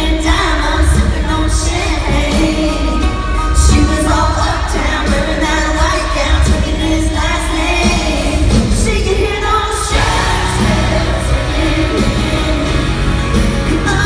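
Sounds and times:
pop-country band playing live: 0:00.0 - 0:14.0
woman singing: 0:00.0 - 0:14.0.

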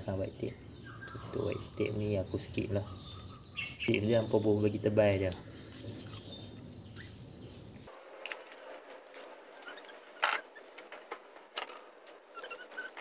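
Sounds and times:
short high-pitched squeaks: 0:09.2 - 0:13.0.

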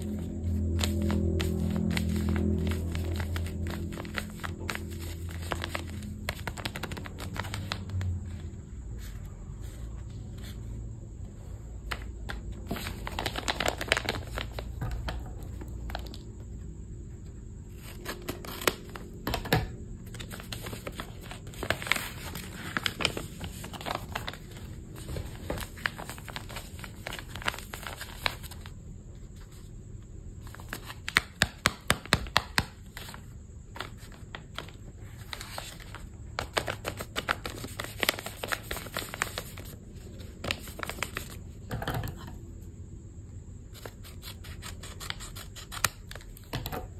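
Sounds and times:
paper and tape rustling: 0:00.0 - 0:08.4, 0:12.6 - 0:16.2, 0:20.0 - 0:28.7, 0:33.8 - 0:41.4.

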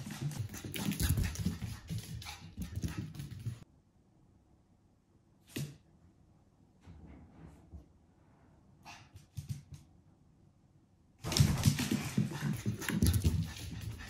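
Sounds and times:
puppy paws and claws on floorboards: 0:00.0 - 0:03.6, 0:11.2 - 0:14.0.

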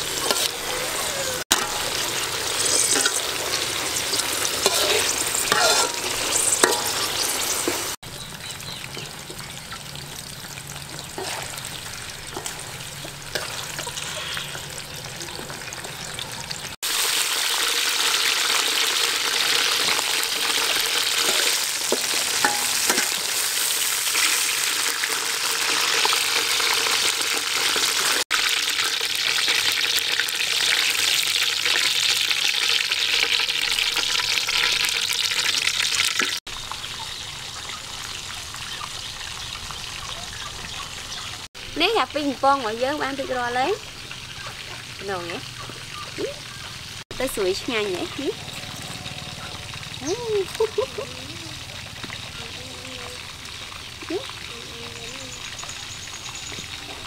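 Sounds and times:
food deep-frying in hot oil: 0:00.0 - 0:57.0
ladle scraping and clinking: 0:01.5 - 0:08.0.

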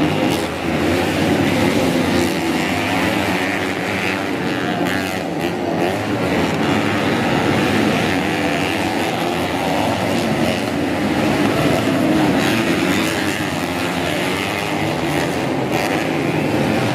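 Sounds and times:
motorcycle engines racing: 0:00.0 - 0:16.9.

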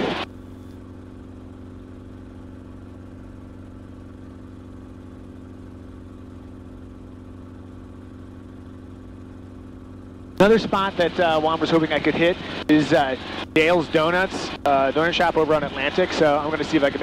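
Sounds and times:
helicopter engine and rotors droning: 0:00.0 - 0:17.0.

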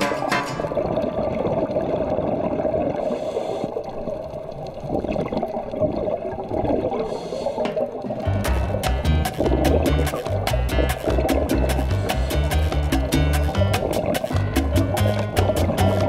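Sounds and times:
underwater bubbling and gurgling: 0:00.0 - 0:16.0.

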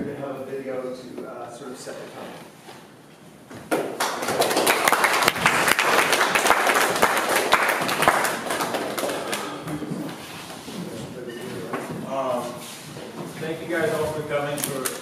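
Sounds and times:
audience applauding: 0:03.9 - 0:09.7.

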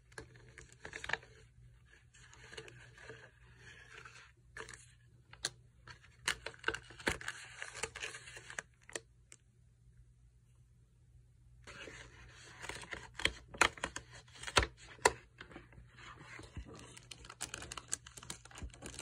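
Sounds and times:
paper package crinkling: 0:06.1 - 0:09.0, 0:11.7 - 0:19.0.

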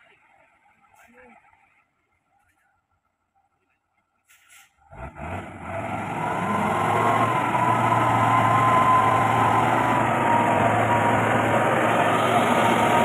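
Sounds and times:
diesel truck engine under load: 0:04.8 - 0:13.0.

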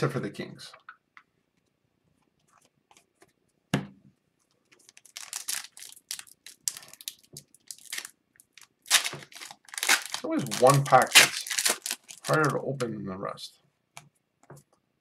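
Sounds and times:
plastic wrapper crinkling and tearing: 0:04.7 - 0:12.8.

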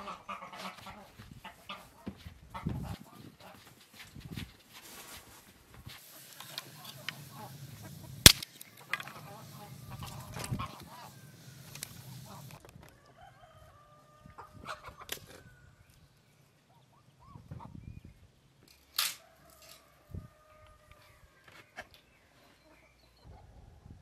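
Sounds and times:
chickens clucking: 0:00.0 - 0:03.7, 0:05.9 - 0:15.6
wood fire crackling: 0:05.9 - 0:12.6
rooster crowing: 0:09.2 - 0:14.5.

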